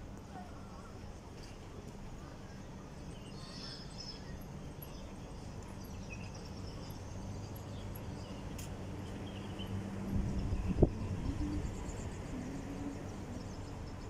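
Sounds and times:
engine drone: 0:04.4 - 0:14.0.

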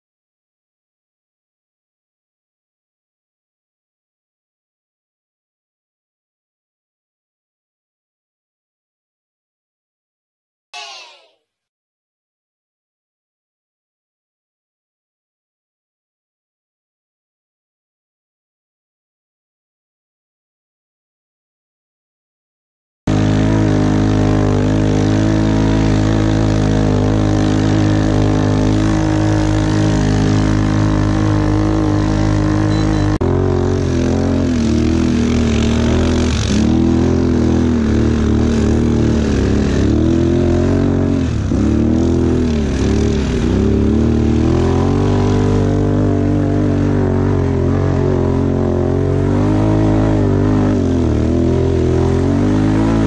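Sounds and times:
quad bike engine revving: 0:23.1 - 0:53.0.

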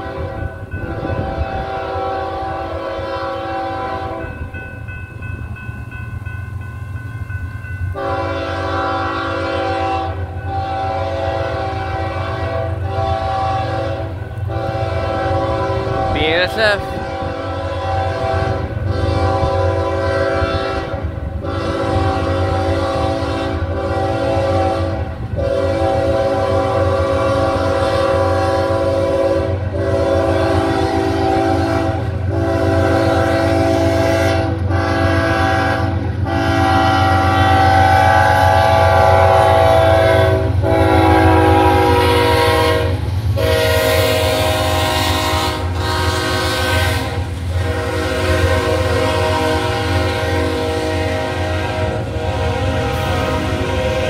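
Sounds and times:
locomotive air horn blasts: 0:00.0 - 0:04.5, 0:08.0 - 0:54.0
locomotive rumble: 0:00.0 - 0:54.0.

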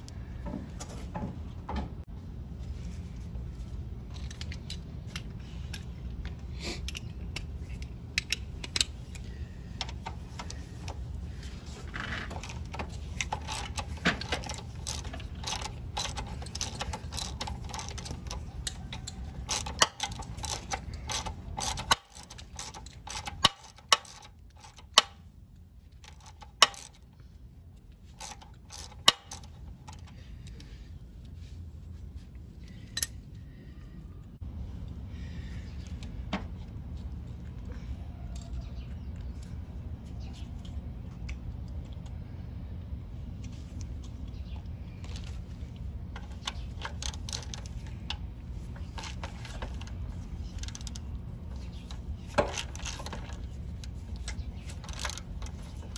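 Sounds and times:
steady low hum: 0:00.0 - 0:55.9
socket ratchet clicking: 0:12.4 - 0:25.2, 0:28.2 - 0:30.1.

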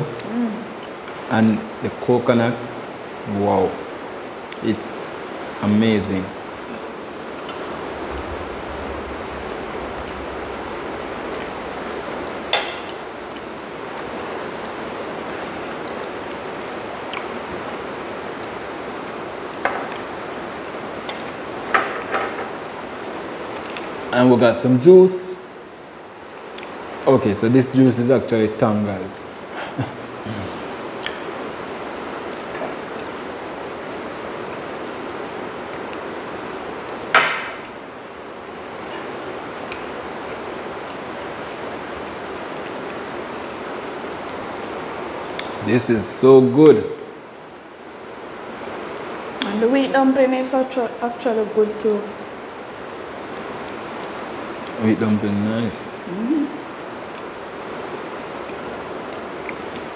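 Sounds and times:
falling rain: 0:00.0 - 0:59.9.

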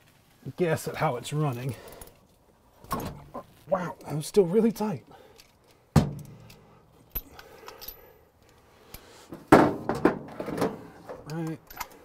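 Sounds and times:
ratchet and socket clinking: 0:05.4 - 0:08.1, 0:11.2 - 0:12.0.

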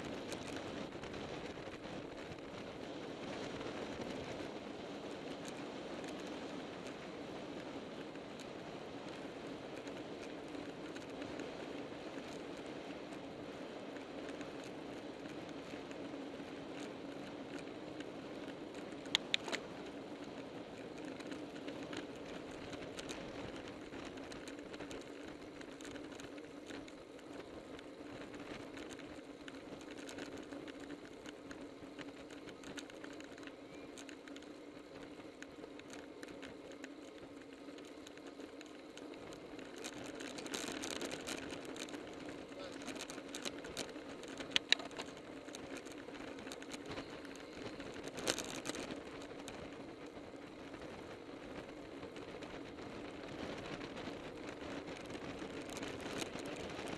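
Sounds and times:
bicycle tyre and wind noise: 0:00.0 - 0:56.9
light ticks: 0:00.0 - 0:56.9.

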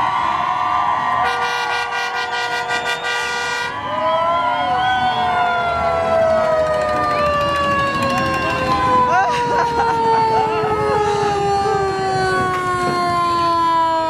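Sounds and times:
fire truck sirens wailing: 0:00.0 - 0:14.0
air horn blast: 0:01.2 - 0:03.8.

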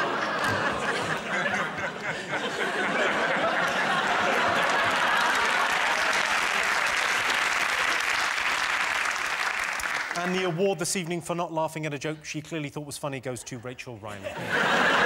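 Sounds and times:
audience laughing: 0:00.0 - 0:08.0, 0:14.1 - 0:15.0
audience applause: 0:00.0 - 0:10.6.

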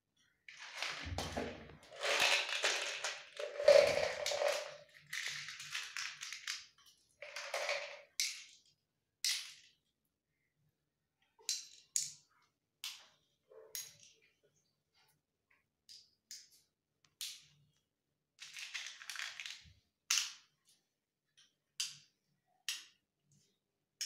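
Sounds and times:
metal vessels clattering on tiles: 0:00.5 - 0:06.5, 0:07.2 - 0:08.1.

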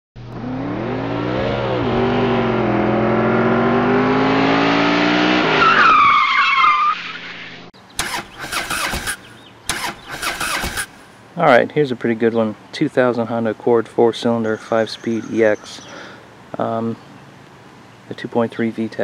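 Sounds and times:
car engine revving: 0:00.2 - 0:06.2
tyre screech: 0:05.4 - 0:10.9
short bursts of noise: 0:07.2 - 0:11.0.

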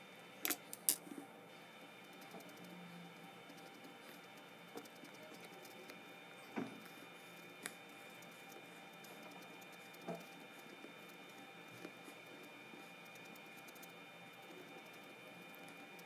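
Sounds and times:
marker scratching on paper: 0:06.8 - 0:16.0.

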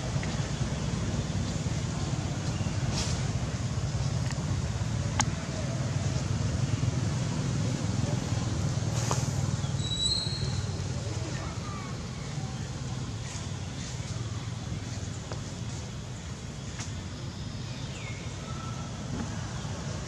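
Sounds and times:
low rumbling background noise: 0:00.0 - 0:20.0.

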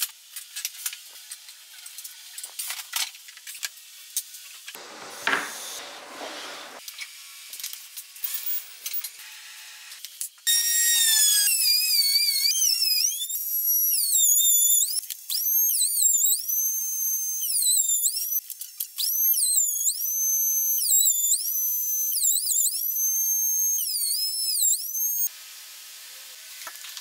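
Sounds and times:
router motor whining: 0:08.2 - 0:25.3.

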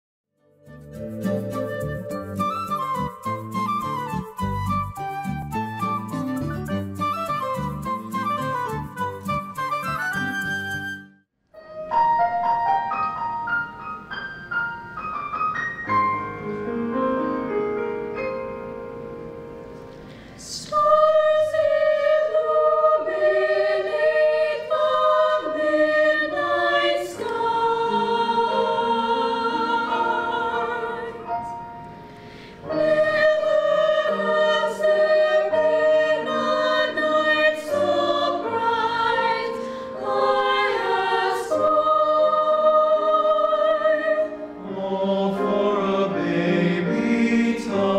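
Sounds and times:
instrumental introduction: 0:00.4 - 0:17.5
choir singing: 0:20.4 - 0:31.8, 0:32.6 - 0:47.9.

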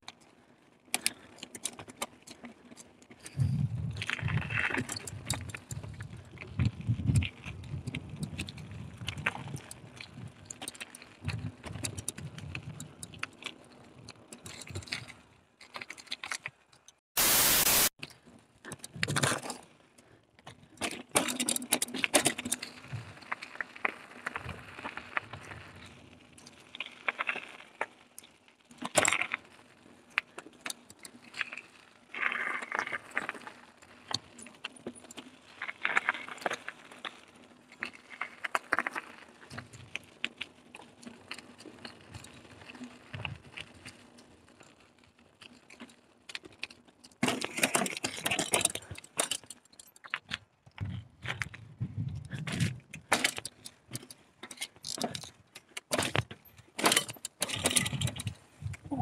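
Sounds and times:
sharp clicks and knocks over bumps: 0:00.0 - 0:17.1, 0:18.0 - 0:59.0
bike parts rattling on dirt trail: 0:00.0 - 0:59.0.

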